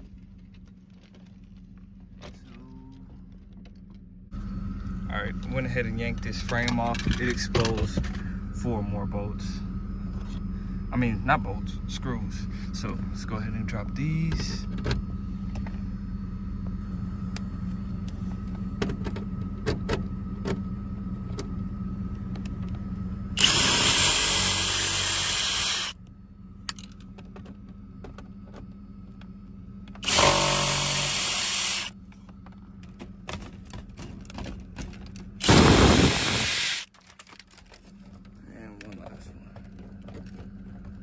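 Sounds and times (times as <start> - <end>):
steady low hum: 0.0 - 41.0
power drill running: 23.4 - 26.0, 30.0 - 31.9, 35.4 - 36.9.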